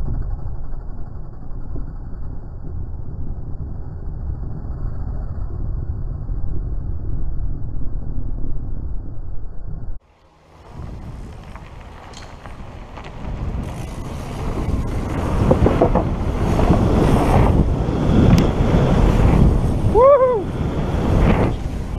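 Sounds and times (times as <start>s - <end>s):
wind rushing over microphone: 0.0s - 21.9s
bike tyres rumbling over gravel: 10.1s - 21.9s
person whooping: 19.9s - 20.6s.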